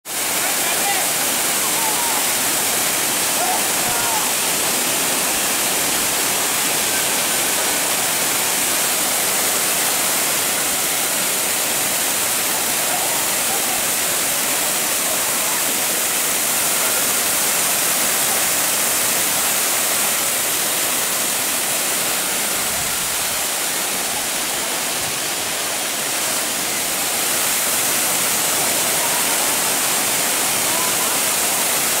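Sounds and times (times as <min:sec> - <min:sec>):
waterfall rushing: 0:00.1 - 0:32.0.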